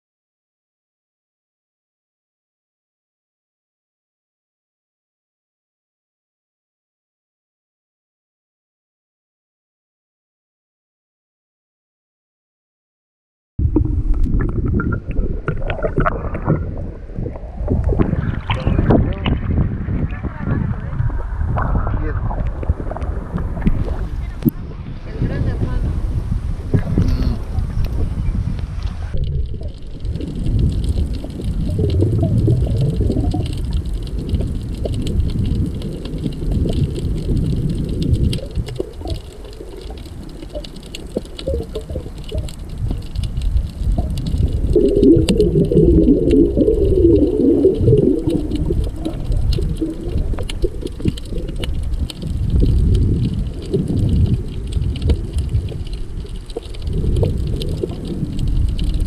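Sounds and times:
underwater gurgling and bubbles: 13.6 - 59.0
faint crackling ticks: 28.6 - 59.0.

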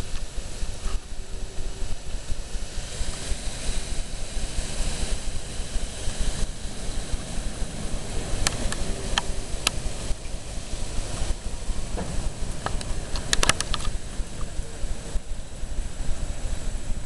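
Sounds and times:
rain hiss: 0.0 - 17.0
wind buffeting microphone: 0.0 - 17.0
sharp clicks: 12.0 - 14.6.

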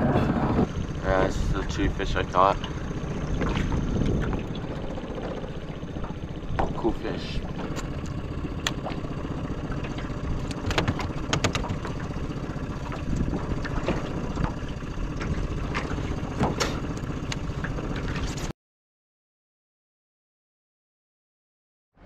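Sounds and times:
low rumble of wind: 0.0 - 18.5
water around a boat: 0.0 - 18.5
sharp knocks and clicks: 9.8 - 12.0, 15.2 - 18.3.

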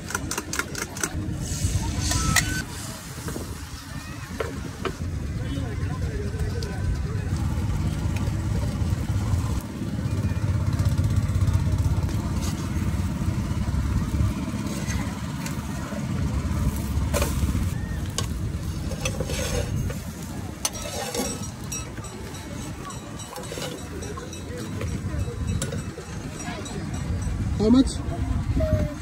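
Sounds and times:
metal spatula scraping a pan: 18.2 - 21.9, 22.7 - 24.2.

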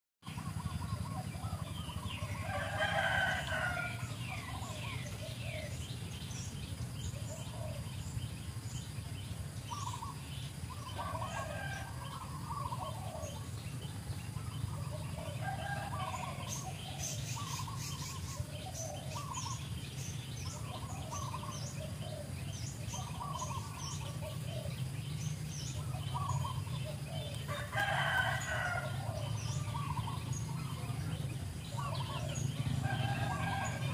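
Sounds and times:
small birds chirping: 0.2 - 33.9
steady low hum: 0.2 - 33.9
rooster crow: 2.2 - 5.0, 10.9 - 13.4, 15.1 - 17.2, 26.2 - 29.9, 31.7 - 33.9.

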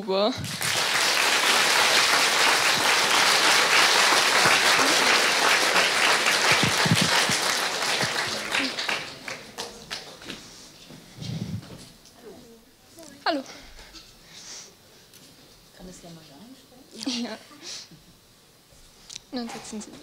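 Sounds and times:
audience applause: 0.4 - 10.3.

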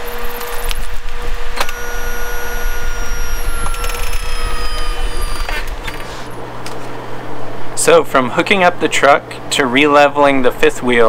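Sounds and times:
leveling jacks whining: 1.5 - 6.4
click: 1.6 - 1.8, 3.4 - 6.0.

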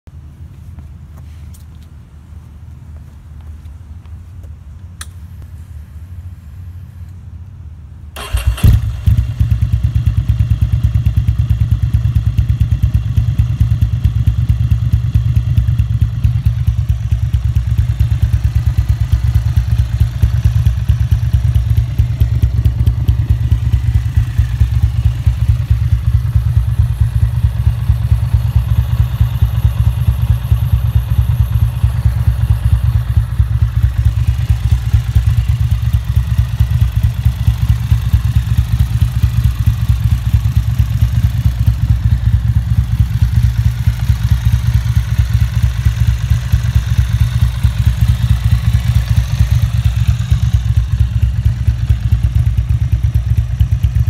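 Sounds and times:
click: 5.0 - 5.2
motorcycle engine starting bark: 8.2 - 11.2
motorcycle engine idling: 8.2 - 54.0.

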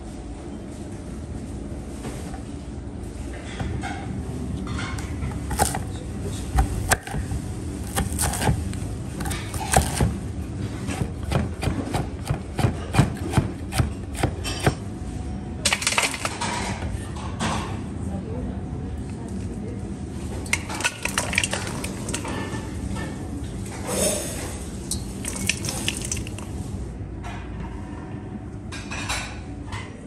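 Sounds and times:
knife chopping on wooden board: 7.9 - 8.6, 9.2 - 10.1, 11.0 - 14.8.

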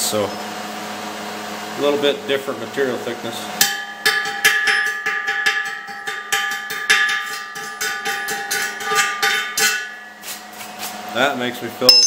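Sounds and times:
hammer striking steel: 3.6 - 10.1.

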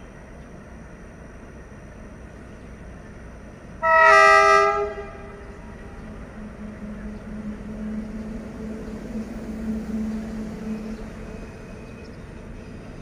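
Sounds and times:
distant locomotive engine hum: 0.0 - 13.0.

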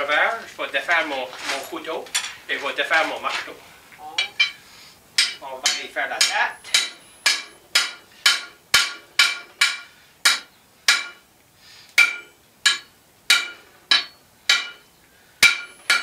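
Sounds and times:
hammer striking iron on anvil: 4.2 - 4.6, 5.2 - 11.2, 12.0 - 16.0.

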